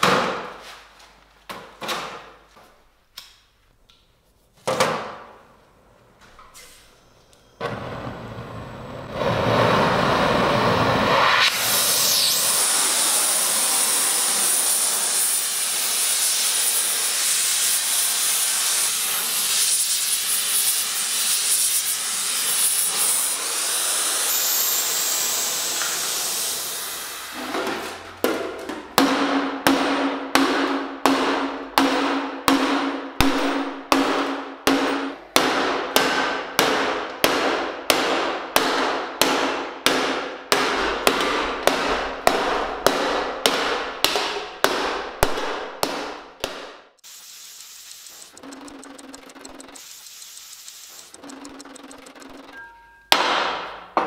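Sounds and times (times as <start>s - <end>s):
steady hissing: 9.1s - 27.4s, 47.0s - 52.6s
hammer striking steel plate: 28.3s - 46.8s, 52.5s - 54.0s.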